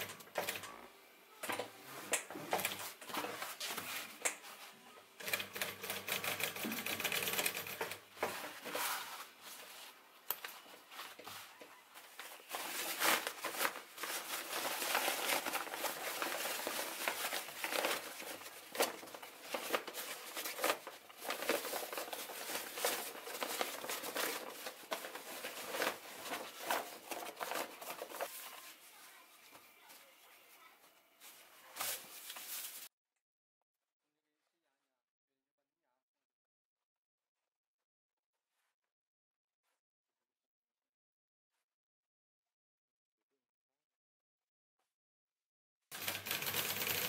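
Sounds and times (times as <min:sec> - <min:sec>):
sewing machine stitching: 0:05.2 - 0:08.1, 0:45.9 - 0:47.0
canvas rustling and crinkling: 0:08.2 - 0:29.2, 0:31.2 - 0:32.9.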